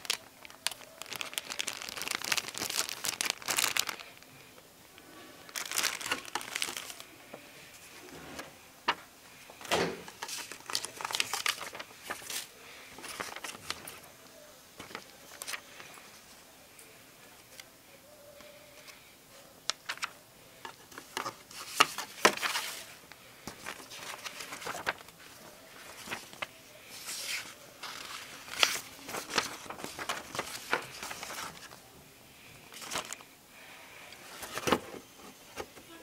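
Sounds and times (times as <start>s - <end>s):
pages flipping: 0.0s - 4.2s, 5.5s - 7.1s, 7.8s - 14.1s, 14.8s - 16.0s, 19.7s - 31.8s, 32.7s - 33.3s, 34.2s - 35.7s
paper rustling: 0.0s - 4.2s, 5.4s - 14.1s, 14.8s - 16.2s, 19.7s - 31.8s, 32.6s - 33.3s, 34.2s - 35.8s.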